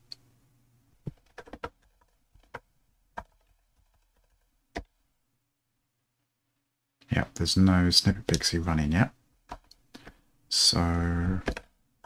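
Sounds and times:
keyboard typing: 1.0s - 4.9s, 9.5s - 10.2s.

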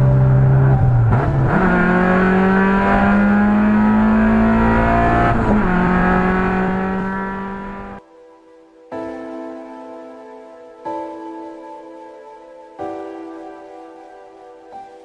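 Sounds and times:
car engine running under load: 0.0s - 8.0s.

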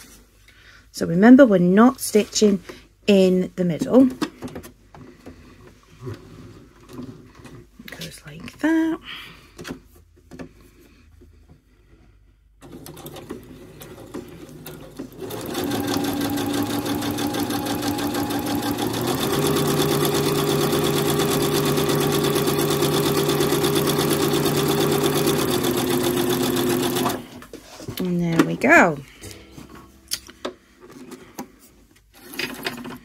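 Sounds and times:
sewing machine stitching: 12.6s - 27.4s.

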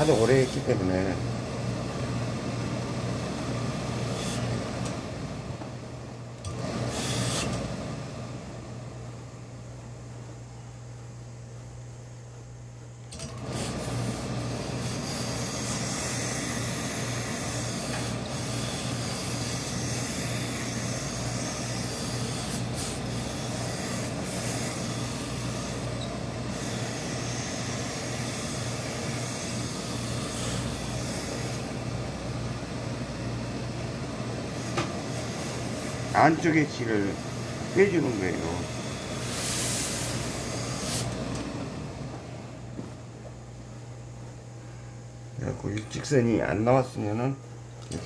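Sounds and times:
steam hissing: 6.7s - 7.6s, 13.4s - 31.6s, 34.6s - 41.4s.

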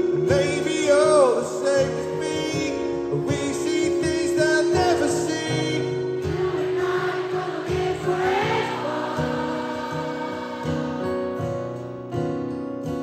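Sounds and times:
person singing: 0.0s - 11.6s
strummed acoustic guitar: 0.0s - 13.0s
choir-like mass of voices: 5.8s - 11.9s.

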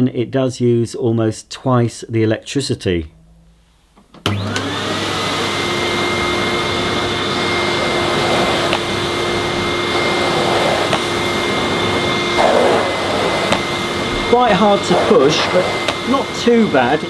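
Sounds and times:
vacuum cleaner motor whine: 4.2s - 17.0s
floor nozzle pushed over carpet: 4.3s - 17.0s.

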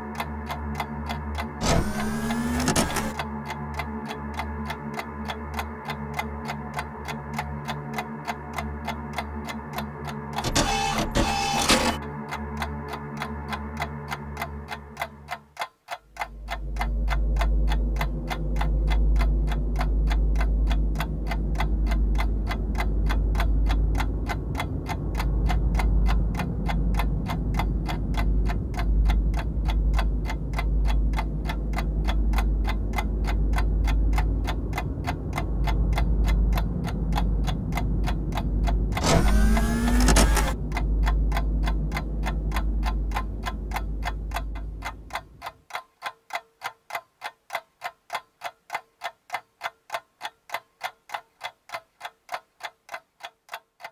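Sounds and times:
clock-like ticking: 0.0s - 53.9s
deep bass drone: 16.4s - 45.4s.

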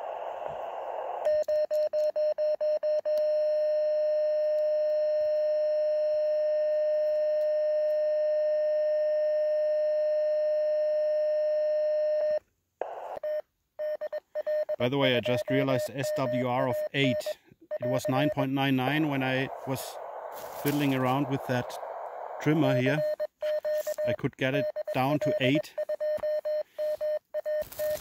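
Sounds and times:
short radio beeps: 12.8s - 28.0s
long steady tone: 14.5s - 24.2s.

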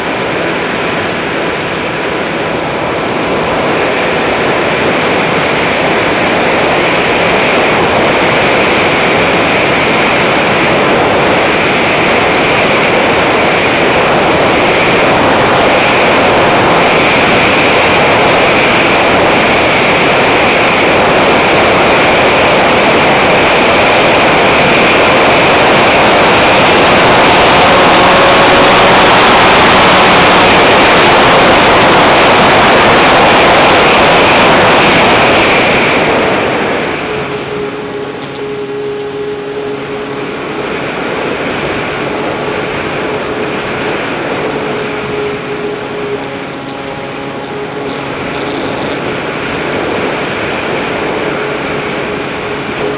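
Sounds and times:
wind and propeller noise: 0.0s - 52.9s.

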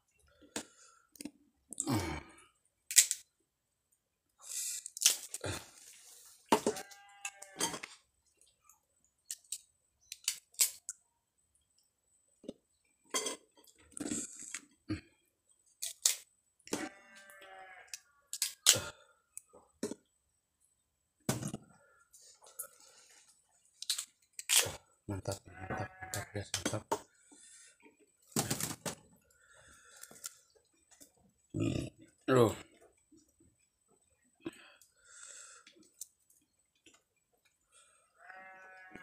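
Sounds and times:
beans cracking while chewed: 0.4s - 1.9s, 2.9s - 3.3s, 4.7s - 6.0s, 6.8s - 11.0s, 13.6s - 14.8s, 15.8s - 16.3s, 17.9s - 20.1s, 23.6s - 25.4s, 29.7s - 31.7s, 35.6s - 37.6s.

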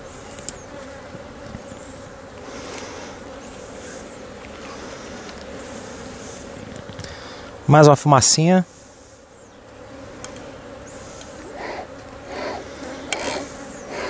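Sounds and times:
honeybees buzzing: 0.0s - 14.0s.

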